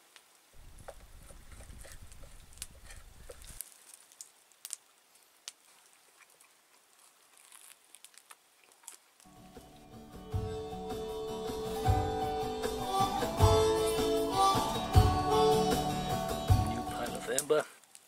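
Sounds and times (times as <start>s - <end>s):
faint clicks and rustles: 0.1s - 9.3s, 17.3s - 18.0s.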